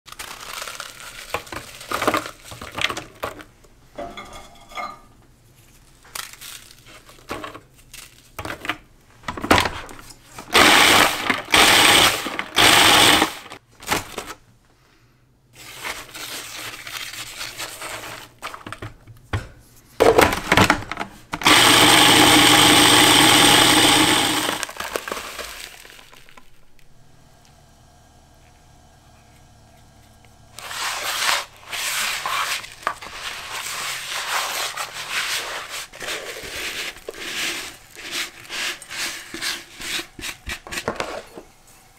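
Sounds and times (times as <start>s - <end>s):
food processor grinding: 10.5s - 13.6s, 21.4s - 34.0s
cookies dropping into plastic bowl: 24.6s - 26.7s.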